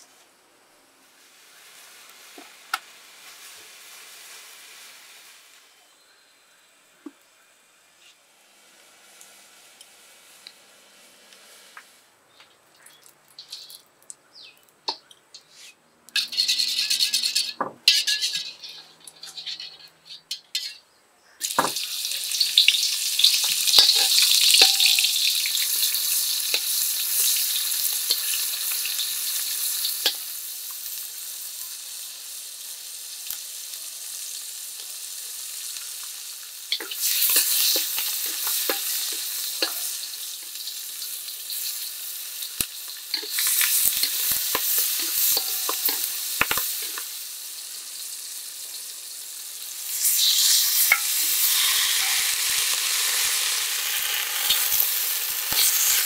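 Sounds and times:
fish sizzling in hot oil: 1.1 - 5.7, 21.4 - 56.0
metal spatula scraping a wok: 13.4 - 13.8, 15.4 - 20.8, 22.6 - 30.3, 36.7 - 47.2, 49.9 - 56.0.

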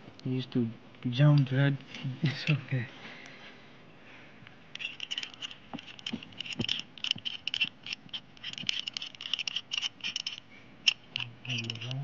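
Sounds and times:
metallic clicking and scraping: 4.7 - 12.0.

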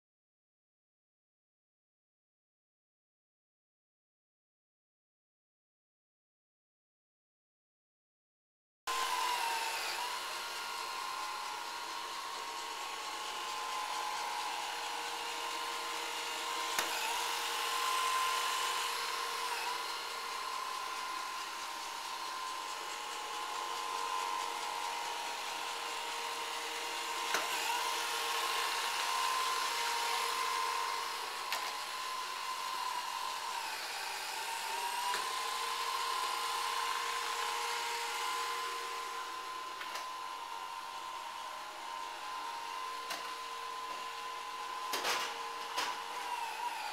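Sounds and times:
robot vacuum motor whine: 8.9 - 46.9.

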